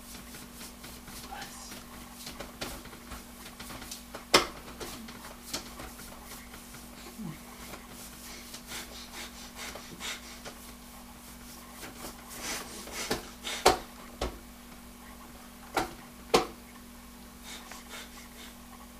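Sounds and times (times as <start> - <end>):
hands rubbing plastic tray: 0.0 - 13.9.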